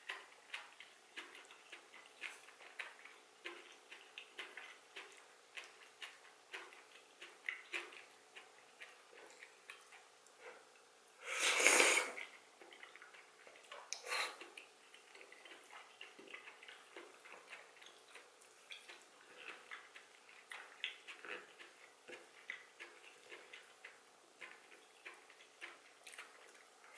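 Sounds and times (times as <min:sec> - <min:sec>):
wet chewing: 0:00.0 - 0:10.9, 0:11.6 - 0:26.9
person slurping: 0:11.2 - 0:12.3.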